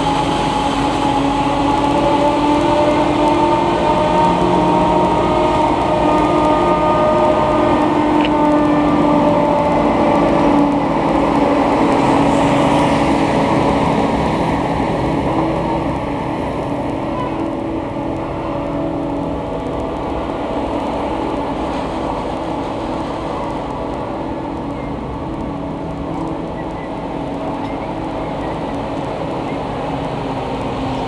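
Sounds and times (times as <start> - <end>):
diesel engines droning: 0.0 - 31.0.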